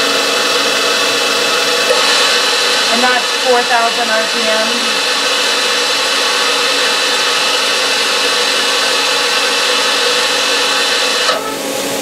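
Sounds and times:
lathe spindles whining: 0.0s - 12.0s
hiss: 4.3s - 12.0s.

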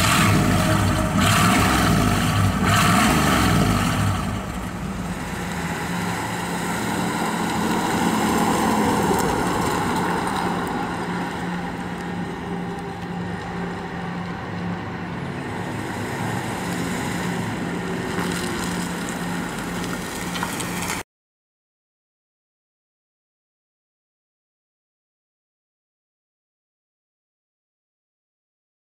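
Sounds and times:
car engine driving past: 0.0s - 21.0s.

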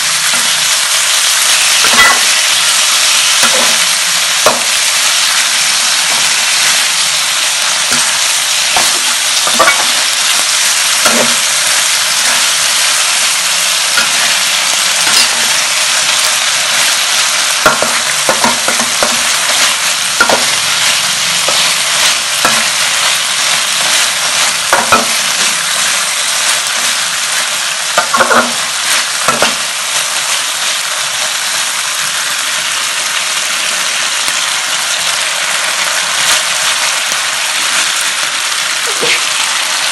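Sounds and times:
food sizzling in wok: 0.0s - 39.9s
metal spatula scraping pan: 1.6s - 2.6s, 3.2s - 29.7s.

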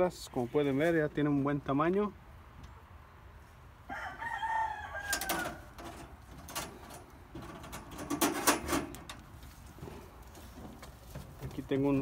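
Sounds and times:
rooster crowing: 3.9s - 6.0s.

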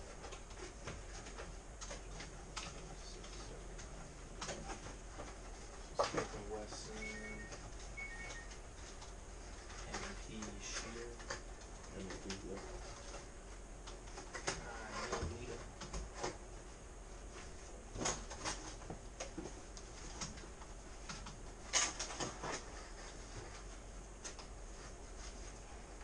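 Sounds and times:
paper rustling and clicking: 8.9s - 13.3s.

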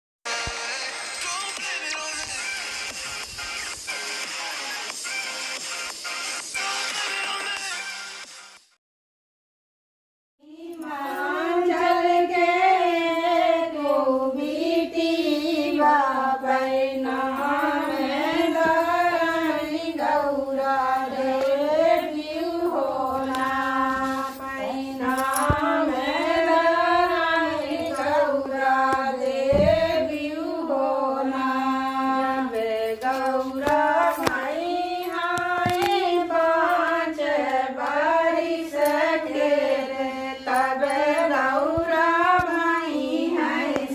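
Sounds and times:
women singing folk song: 10.4s - 43.9s.

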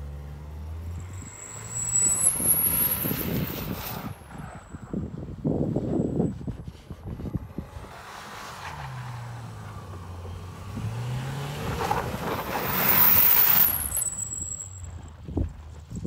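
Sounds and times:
tyres rushing through snow: 6.7s - 14.9s.

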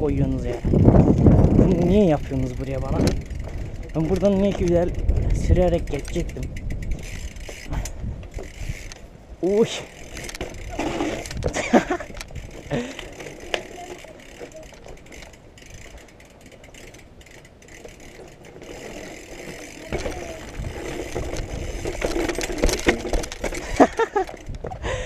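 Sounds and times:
wind rumbling on microphone: 0.0s - 13.8s, 18.2s - 25.0s
bike frame and chain rattling: 0.0s - 25.0s
tyres crunching on gravel: 17.8s - 24.0s.

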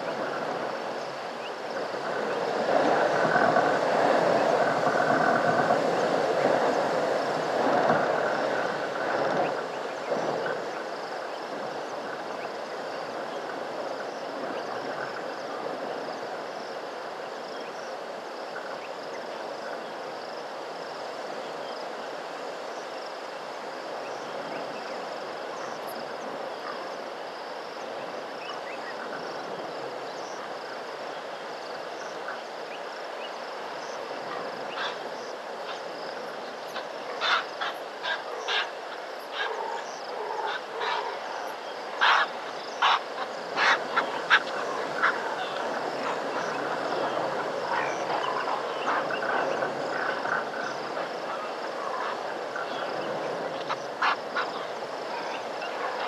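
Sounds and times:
outdoor background hiss: 0.0s - 56.0s
sharp animal calls: 36.8s - 41.4s, 42.0s - 46.6s.

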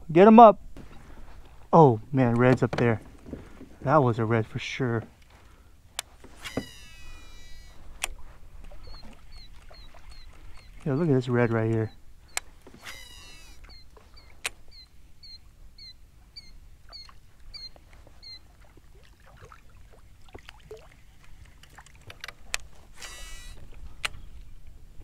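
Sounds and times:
fishing reel spool whirring: 6.3s - 18.4s, 22.9s - 24.3s
light clicks: 11.6s - 13.8s, 21.2s - 24.5s.

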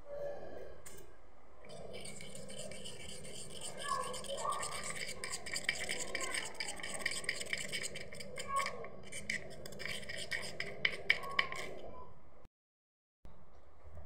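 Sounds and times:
spoon scraping metal bowl: 1.7s - 11.8s.

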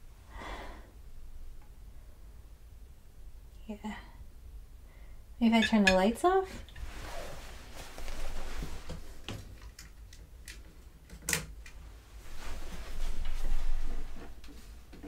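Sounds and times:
rustling: 5.8s - 9.8s, 11.8s - 14.9s.

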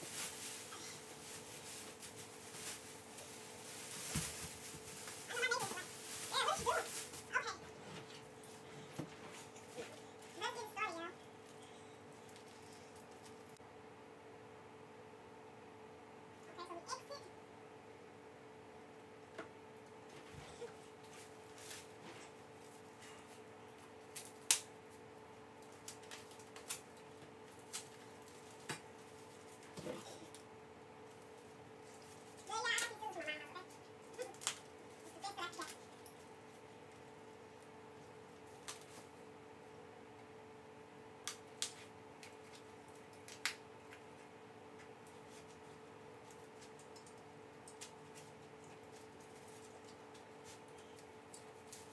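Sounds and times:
packaging wrap crinkling: 0.0s - 7.4s
faint steady hum: 0.0s - 51.9s.

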